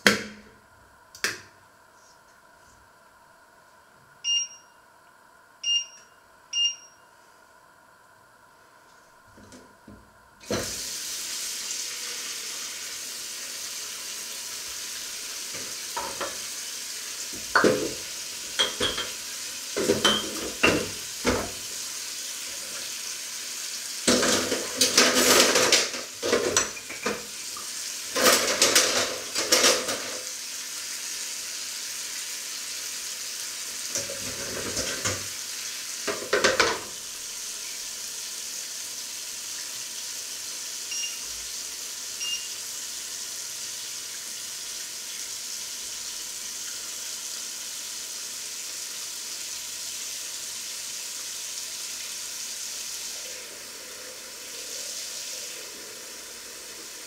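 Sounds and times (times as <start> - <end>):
dishes clattering: 18.6 - 19.2, 19.8 - 21.5, 24.1 - 27.3, 28.2 - 30.2, 36.1 - 36.9.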